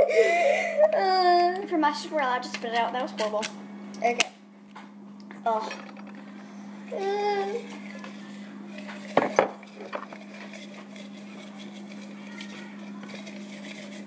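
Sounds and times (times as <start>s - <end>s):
steady low hum: 0.0s - 14.0s
tableware clattering on a table: 8.8s - 10.2s.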